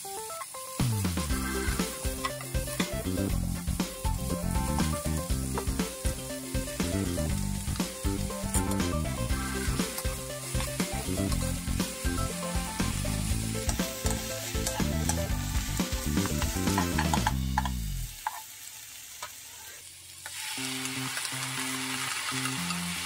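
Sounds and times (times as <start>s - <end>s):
light background music: 0.0s - 17.5s
food sizzling in a frying pan: 0.0s - 23.0s.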